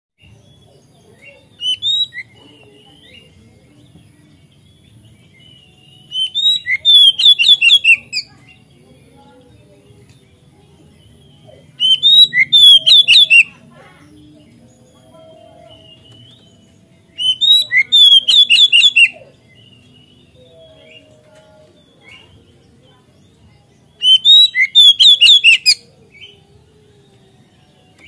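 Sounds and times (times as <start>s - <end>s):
bird singing whistled phrases: 1.6s - 3.3s, 5.3s - 8.3s, 11.7s - 13.6s, 15.7s - 22.3s, 23.8s - 26.5s.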